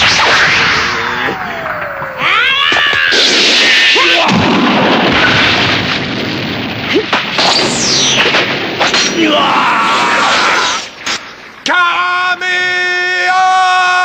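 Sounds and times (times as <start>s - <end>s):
falling swish: 0.0s - 4.1s
rock crashing and breaking: 2.6s - 7.6s.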